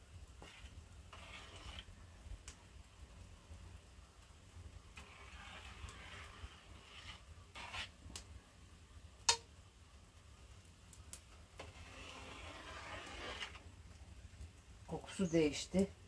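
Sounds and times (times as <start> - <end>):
metal skimmer scraping a pan: 0.4 - 1.9, 4.9 - 7.9, 11.6 - 13.6.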